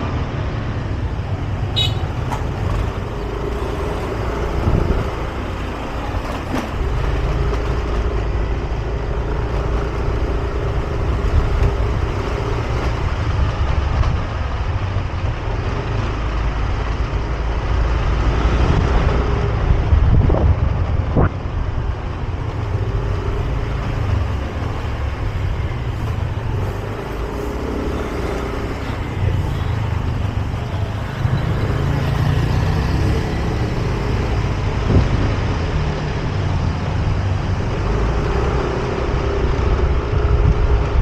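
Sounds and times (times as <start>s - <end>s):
scooter engine humming: 0.7s - 13.7s, 22.0s - 35.0s
wind rumbling on microphone: 0.7s - 41.0s.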